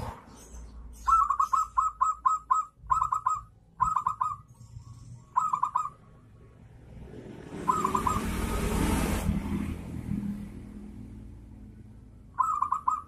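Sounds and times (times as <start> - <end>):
rushing background noise: 0.0 - 13.0
dove cooing: 1.0 - 4.5, 5.2 - 6.0, 7.6 - 8.5, 12.4 - 13.0.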